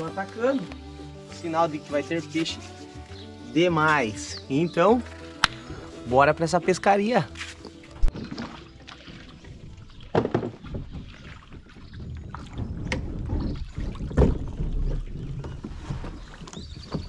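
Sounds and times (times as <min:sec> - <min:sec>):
paddle splashing water: 0:07.3 - 0:17.0
wind rumble on microphone: 0:08.0 - 0:17.0.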